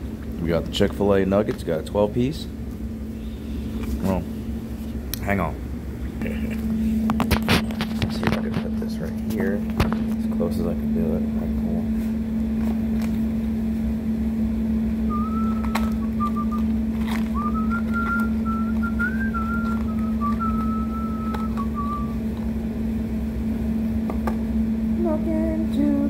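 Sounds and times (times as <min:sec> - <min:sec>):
steady low hum: 0:00.0 - 0:26.0
person whistling a tune: 0:15.1 - 0:16.7, 0:17.3 - 0:22.2.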